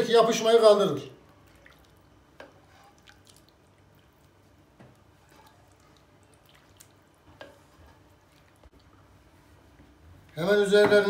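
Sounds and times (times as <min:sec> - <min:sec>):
wet plops of sauce: 0:01.4 - 0:07.6
wooden spoon scraping: 0:02.4 - 0:03.1, 0:05.0 - 0:06.0.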